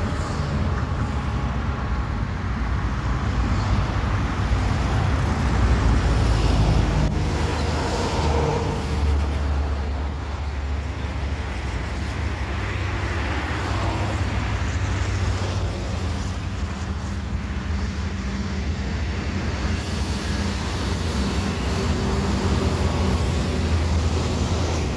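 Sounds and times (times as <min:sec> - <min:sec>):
distant airliner jet noise: 0:00.0 - 0:24.9
low rumble of road traffic: 0:00.0 - 0:24.9.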